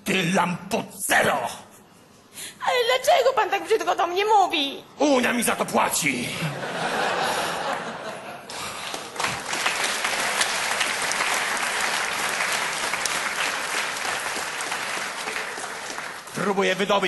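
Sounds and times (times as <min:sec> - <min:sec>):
audience applauding: 0:08.5 - 0:17.0.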